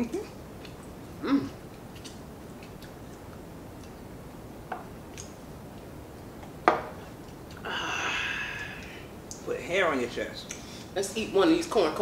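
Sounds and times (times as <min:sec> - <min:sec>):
glass set down on table: 0:06.6 - 0:07.0.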